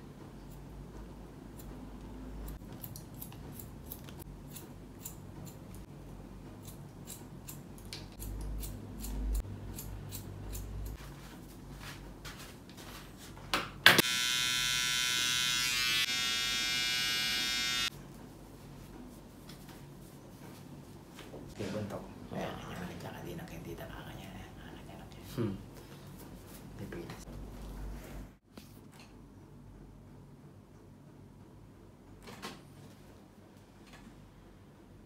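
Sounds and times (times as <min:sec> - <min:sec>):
scissors snipping hair: 0:02.5 - 0:05.9, 0:06.6 - 0:11.0
hair clipper buzzing: 0:13.9 - 0:17.9.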